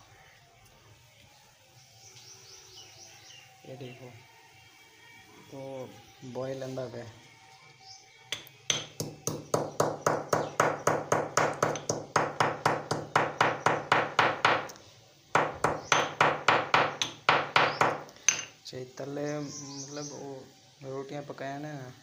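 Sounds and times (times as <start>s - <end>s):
pestle pounding in mortar: 8.7s - 14.7s, 15.4s - 18.0s.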